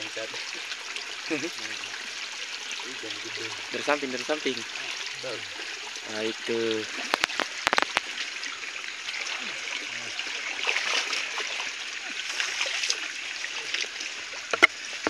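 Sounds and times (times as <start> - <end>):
people wading in water: 0.0 - 15.0
stream water trickling: 0.0 - 15.0
sharp clicks: 7.1 - 8.1.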